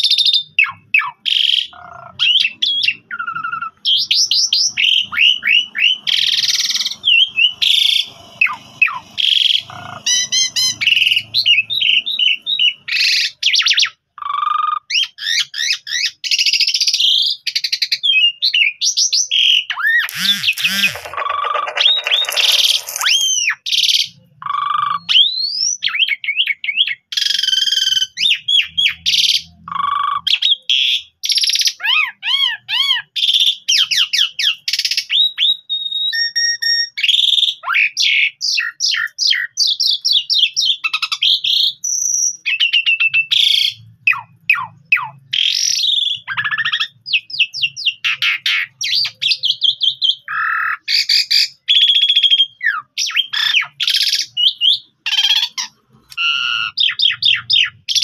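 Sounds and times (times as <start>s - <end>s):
harsh rasping bird calls: 0.1s - 17.4s, 19.3s - 35.3s, 42.5s - 58.0s
starling singing: 0.4s - 13.4s, 19.6s - 25.2s.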